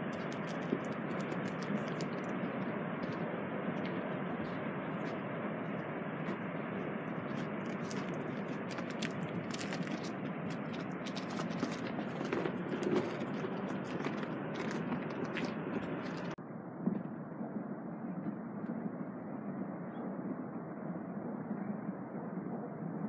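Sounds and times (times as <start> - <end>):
crackles and clicks: 0.0 - 16.4.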